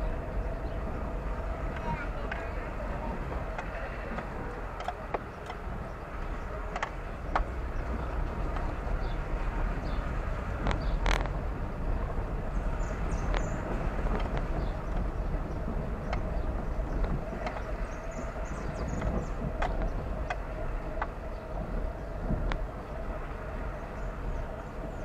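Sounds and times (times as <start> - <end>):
car road and engine rumble: 0.0 - 25.0
irregular clicks and knocks: 3.3 - 9.2, 16.0 - 21.2.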